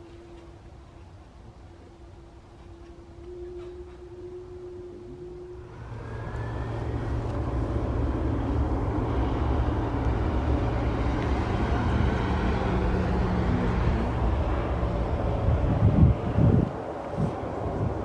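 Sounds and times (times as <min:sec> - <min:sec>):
jet engines spooling up: 0:05.6 - 0:18.0.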